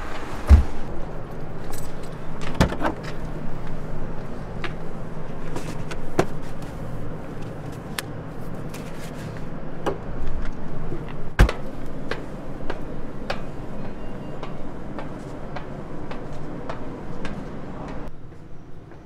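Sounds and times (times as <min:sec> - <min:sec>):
heavy thud: 0:00.4 - 0:00.9.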